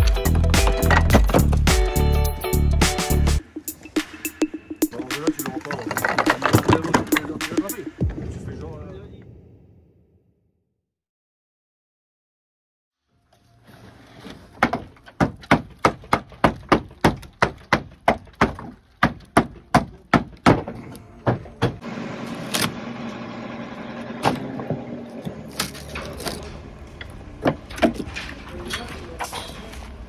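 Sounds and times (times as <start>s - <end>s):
wood knocks and clatters: 0.1s - 1.7s, 5.1s - 7.7s
hammer blows on wooden boards: 14.6s - 21.8s.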